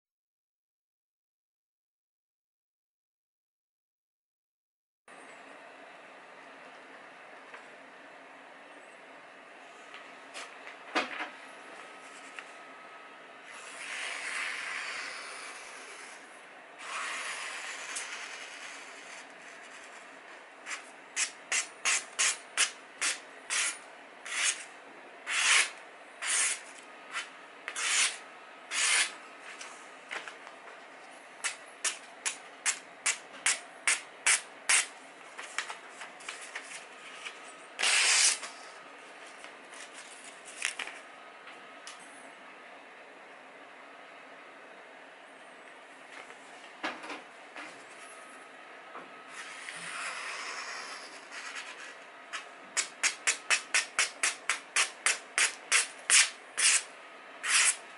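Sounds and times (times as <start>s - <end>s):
paper rustling: 35.4s - 37.4s, 39.2s - 41.0s
knife slicing paper: 36.3s - 38.6s, 52.8s - 57.8s.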